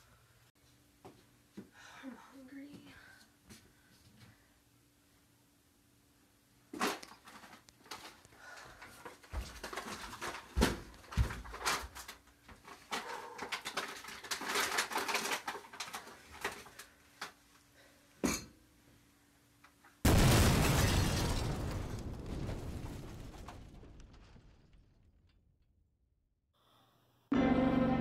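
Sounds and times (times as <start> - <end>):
plastic snack bag crinkling: 9.0 - 17.0
loud explosion blast: 20.1 - 25.2.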